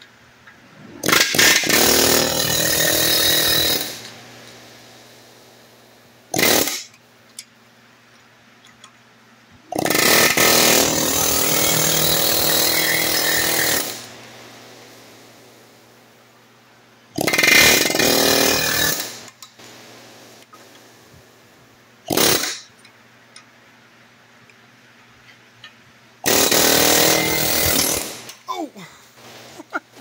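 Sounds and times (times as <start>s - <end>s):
pneumatic air hammer hammering: 1.0s - 4.2s, 6.3s - 7.5s, 9.7s - 14.1s, 17.1s - 19.6s, 22.0s - 22.8s, 26.2s - 28.4s.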